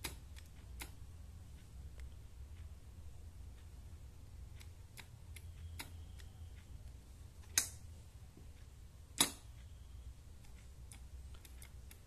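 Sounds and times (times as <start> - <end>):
sharp clicks: 0.0 - 2.7, 4.4 - 7.9, 9.1 - 12.0
faint ticking: 0.0 - 12.0.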